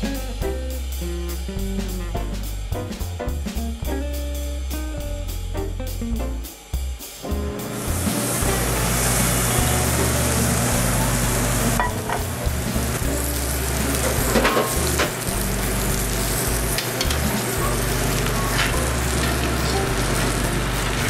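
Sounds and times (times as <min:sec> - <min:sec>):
steak sizzling: 0:07.2 - 0:21.0.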